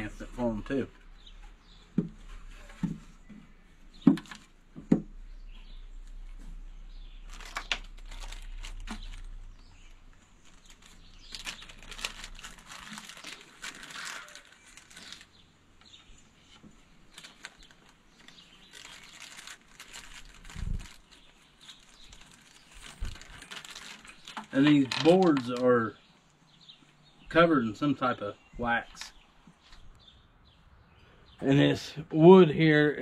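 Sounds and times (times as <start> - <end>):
wooden box parts knocking: 4.0 - 5.2
plastic bag crinkling: 6.0 - 25.7.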